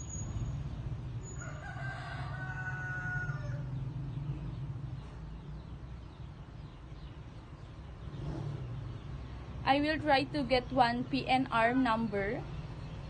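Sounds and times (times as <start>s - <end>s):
rooster crowing: 1.2s - 3.8s.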